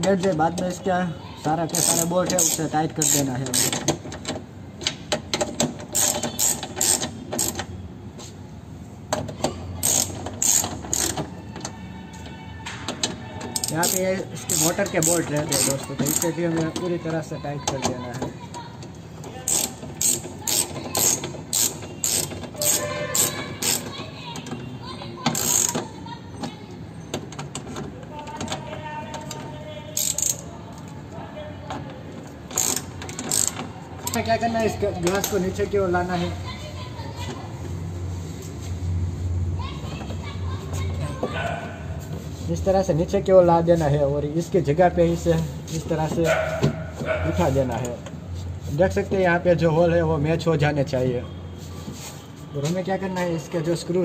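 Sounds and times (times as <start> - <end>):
ratchet wrench clicking: 1.7 - 4.0, 4.9 - 7.7, 9.8 - 11.3, 13.5 - 16.9, 19.4 - 24.0, 25.2 - 26.0, 29.2 - 30.9, 32.5 - 35.6.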